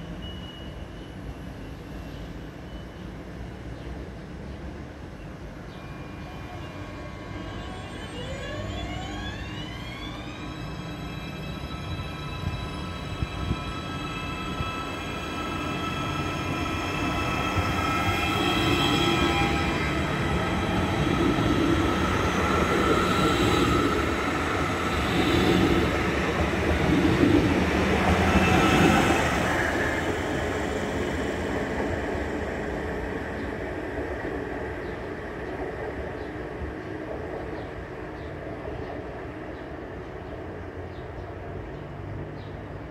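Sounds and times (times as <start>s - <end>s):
train approaching rumble: 0.0s - 42.9s
steady high tones: 5.8s - 32.5s.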